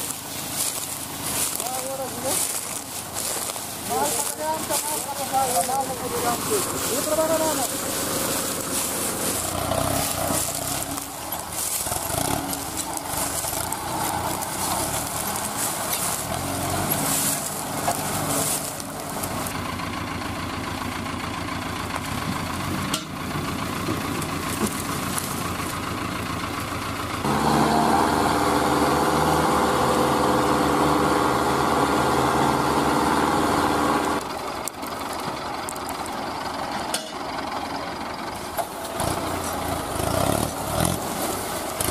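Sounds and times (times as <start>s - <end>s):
dry cane trash rustling: 0.0s - 20.0s, 21.8s - 26.5s, 34.0s - 41.9s
tractor diesel engine running: 0.0s - 41.9s.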